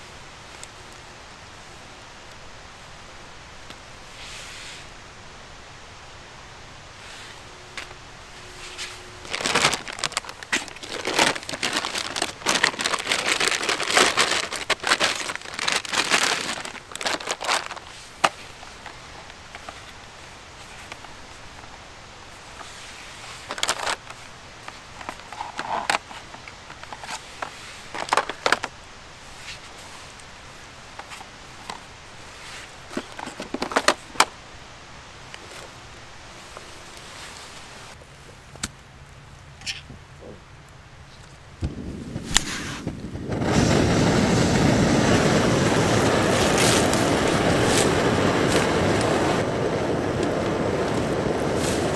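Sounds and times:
soft gas hiss: 0.0s - 51.9s
stove burner rushing hiss: 4.0s - 5.1s.

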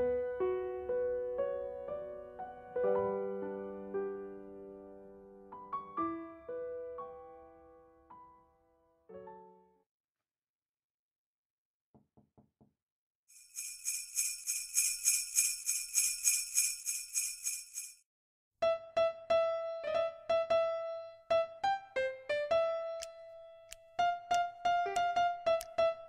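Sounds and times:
sleigh bells shaken: 13.3s - 18.0s.

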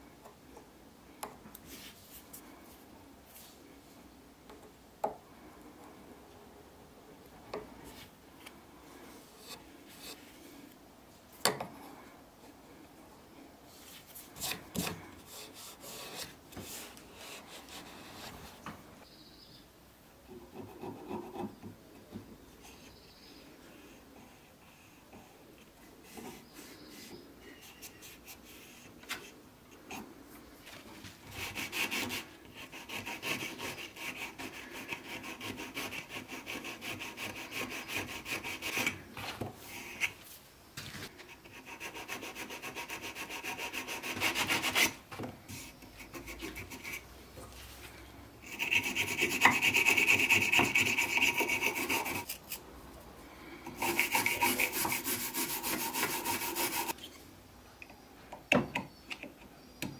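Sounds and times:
sandpaper rasping on wood: 31.4s - 38.9s, 41.5s - 45.0s, 48.5s - 52.4s, 53.8s - 57.0s.

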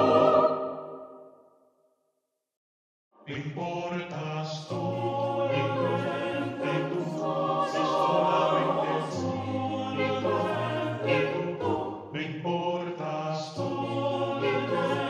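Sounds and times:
choir singing unaccompanied: 0.0s - 1.2s, 4.4s - 15.0s.

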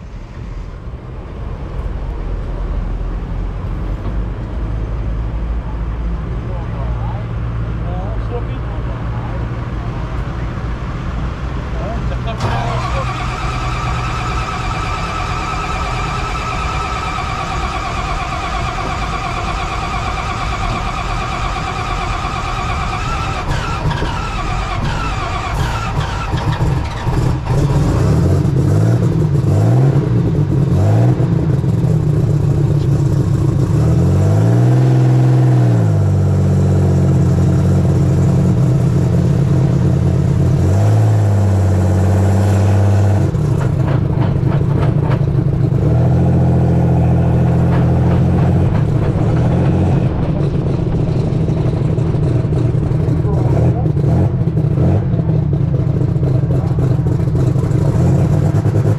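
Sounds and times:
diesel tractor engine revving: 0.0s - 58.9s
turbo whine: 12.4s - 26.9s.

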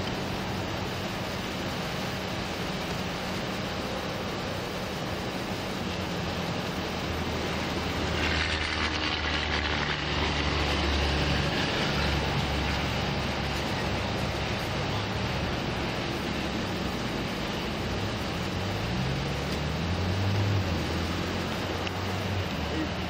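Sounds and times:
road traffic engine drone: 0.0s - 23.0s
vehicle passing close by: 5.3s - 23.0s.

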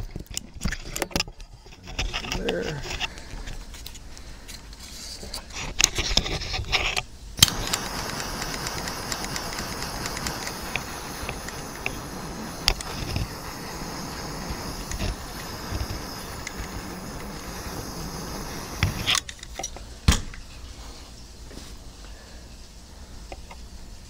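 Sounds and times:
wires rustling and clicking: 0.0s - 19.8s
heat gun fan blowing: 1.9s - 20.9s.

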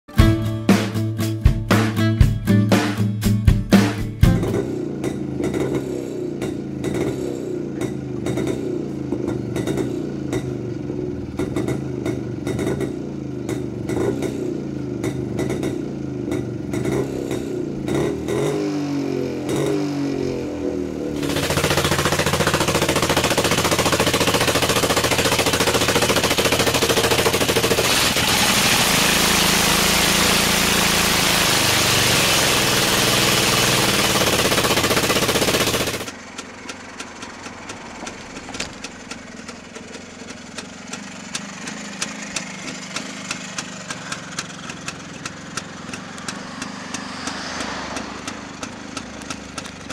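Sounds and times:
harsh two-stroke engine clatter: 3.8s - 49.9s
motorcycle engine idling: 4.2s - 18.6s, 20.6s - 49.9s
engine throttle blips: 21.1s - 49.9s.

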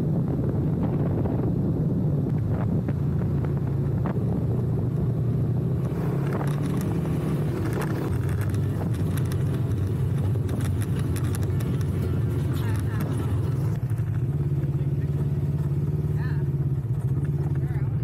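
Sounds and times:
tyre and wind noise: 0.0s - 18.0s
vehicle engine droning: 0.0s - 18.0s
clicks and rattles: 6.2s - 14.2s.

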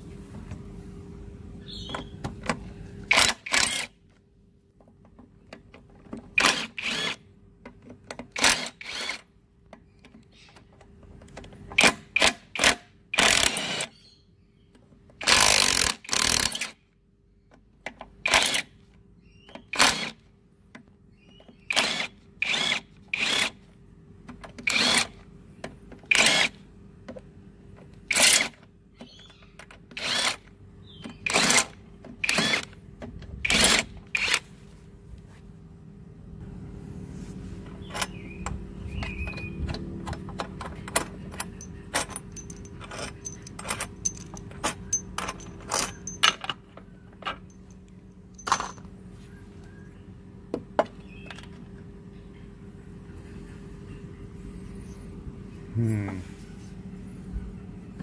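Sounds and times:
cordless drill bursts: 6.4s - 7.2s, 8.4s - 9.2s, 21.7s - 23.6s, 30.0s - 30.4s, 32.2s - 32.7s.

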